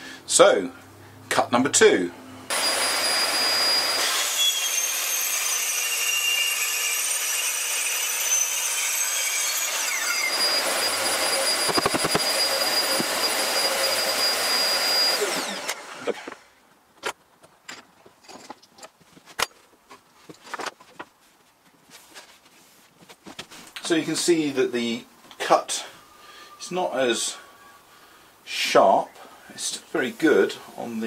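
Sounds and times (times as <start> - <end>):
circular saw cutting chipboard: 2.5 - 16.4.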